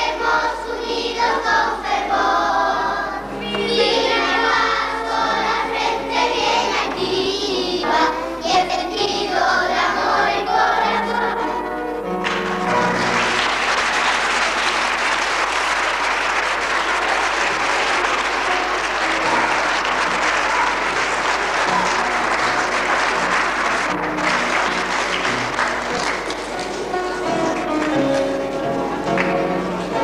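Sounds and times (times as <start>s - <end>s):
music playing: 0.0s - 30.0s
audience applauding: 12.2s - 30.0s.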